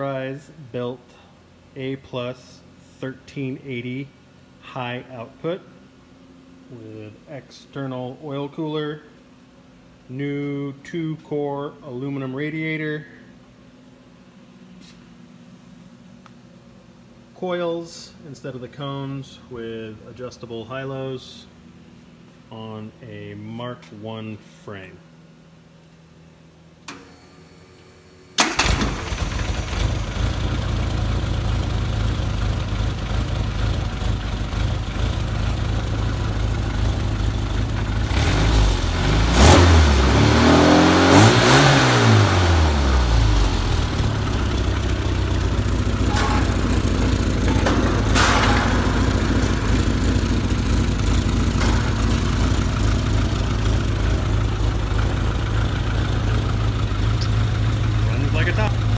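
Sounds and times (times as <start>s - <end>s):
car engine starting and idling: 26.9s - 58.9s
car engine revving: 37.0s - 58.9s.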